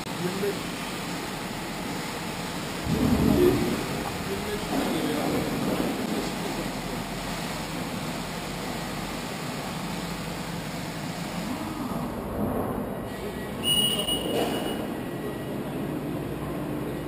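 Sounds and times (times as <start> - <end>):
high tone: 13.2 - 15.4.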